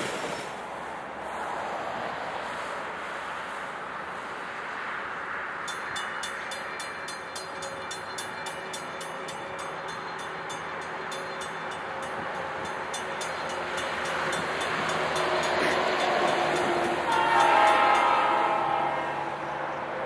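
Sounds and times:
freight train rumble: 0.0 - 20.0
railroad crossing bell ringing: 5.6 - 20.0.

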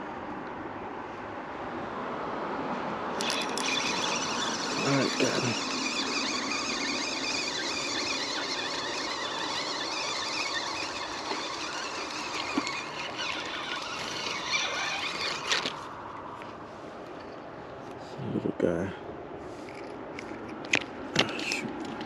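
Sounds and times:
spinning reel whine: 3.2 - 15.8.

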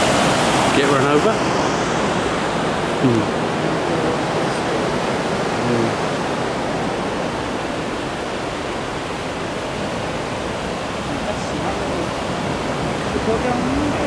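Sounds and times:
water rushing over rapids: 0.0 - 14.0.

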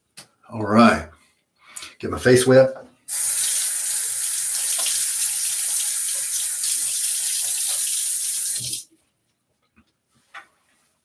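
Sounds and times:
tap running into a sink: 4.4 - 8.8.

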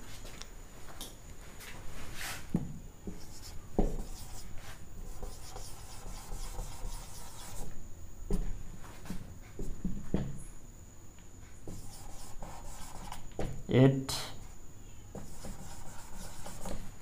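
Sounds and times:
marker writing on whiteboard: 3.1 - 7.7, 11.6 - 13.6, 15.1 - 16.9.

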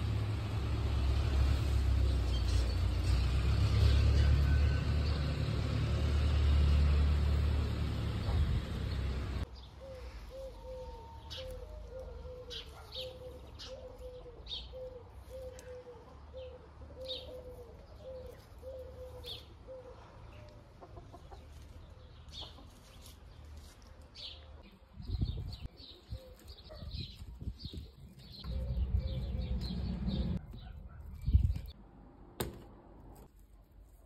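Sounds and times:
low repeated bird calls: 8.8 - 20.5, 24.6 - 31.8.

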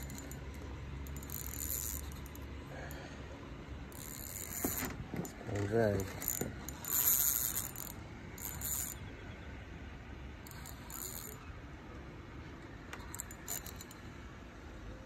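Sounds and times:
fly reel drag clicking: 0.0 - 0.4, 1.0 - 3.0, 3.9 - 4.9, 6.0 - 9.0, 10.5 - 11.4, 13.0 - 14.0.

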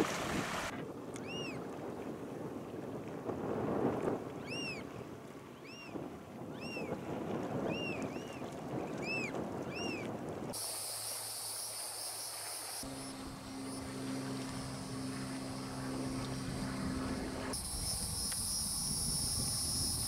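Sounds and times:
wind buffeting microphone: 0.0 - 10.6, 12.8 - 20.0
steady high buzz: 10.6 - 20.0.

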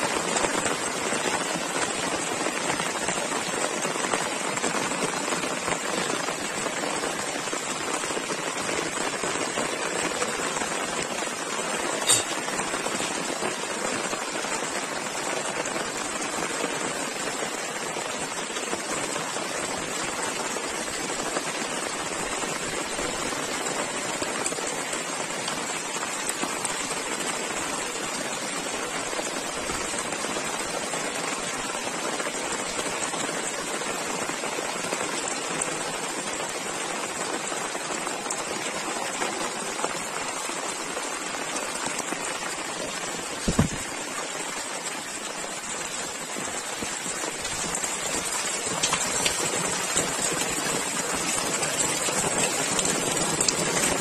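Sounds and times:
rain hissing: 0.0 - 54.0
low thump: 43.5 - 43.8
floodwater running into drain: 46.2 - 54.0.

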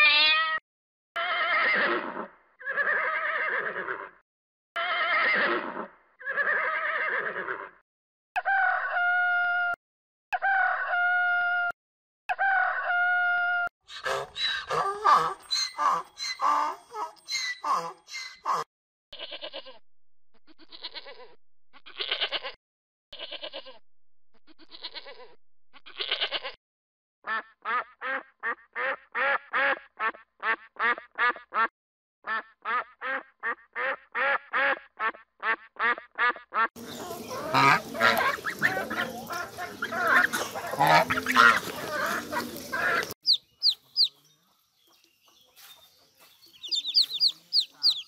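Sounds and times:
goose honking: 13.9 - 18.7, 35.8 - 44.1, 46.6 - 48.0
duck quacking: 13.9 - 19.8, 27.3 - 31.7, 32.3 - 44.1, 46.6 - 48.0
goats bleating: 36.8 - 43.2.

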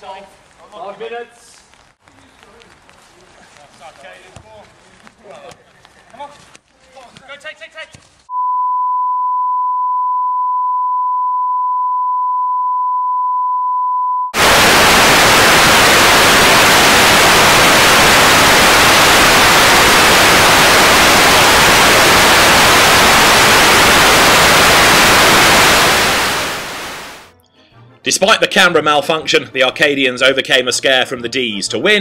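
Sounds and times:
test tone beep: 8.3 - 14.4
television static hissing: 14.4 - 27.3.

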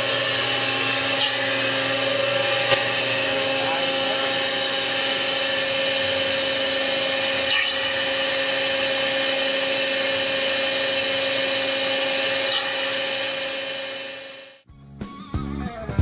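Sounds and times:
hydraulic pump whine: 0.0 - 14.6.

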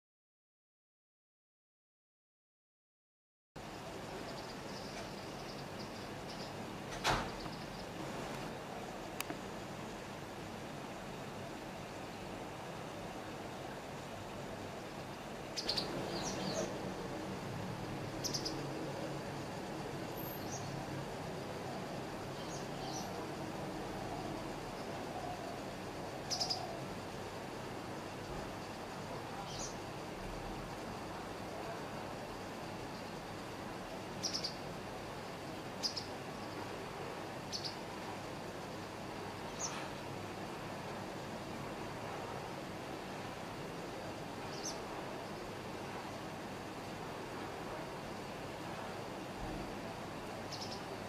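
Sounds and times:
steady background hiss: 3.6 - 51.0
bird high chirping calls: 15.6 - 16.8, 18.2 - 18.6, 26.3 - 26.7, 50.5 - 50.9.

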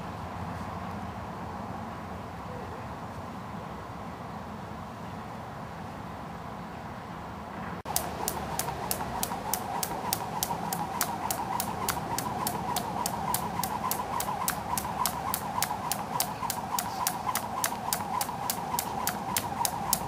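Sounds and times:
skipping rope slapping asphalt: 7.9 - 20.0.

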